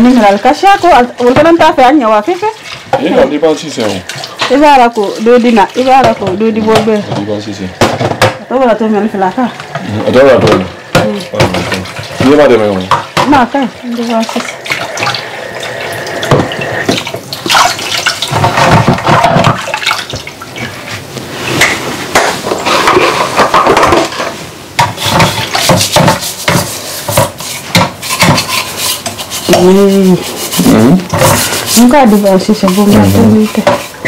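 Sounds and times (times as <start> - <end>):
tap water running: 0.0 - 21.0, 21.6 - 34.0
dishes and cutlery clinking: 21.6 - 34.0
person's voice: 31.8 - 33.6.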